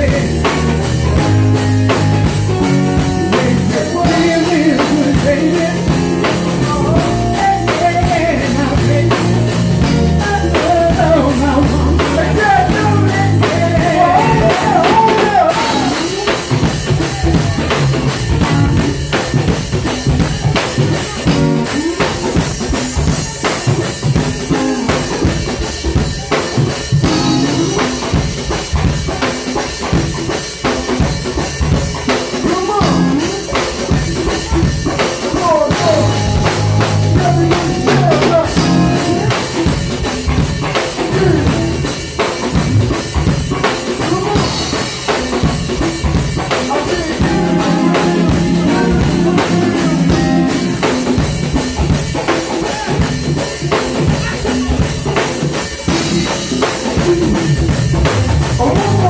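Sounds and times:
congas: 0:00.0 - 0:59.0
drum kit steady beat: 0:00.0 - 0:59.0
electric guitar: 0:00.0 - 0:59.0
keyboards: 0:00.0 - 0:59.0
people singing: 0:10.2 - 0:17.6, 0:46.7 - 0:50.6.

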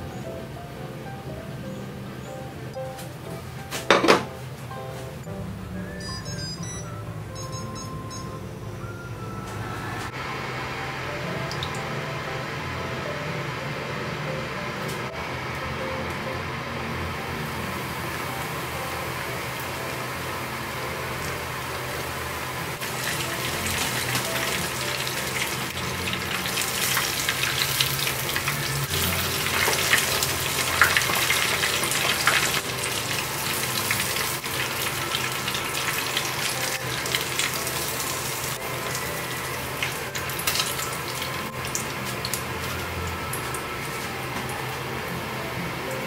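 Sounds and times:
oil sizzling in frying pan: 0:16.1 - 0:45.9
oil crackles and pops: 0:22.8 - 0:44.8.

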